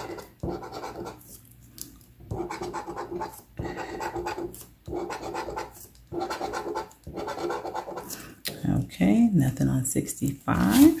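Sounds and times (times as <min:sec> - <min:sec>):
scratching lottery ticket: 0:00.0 - 0:01.4, 0:02.3 - 0:08.2.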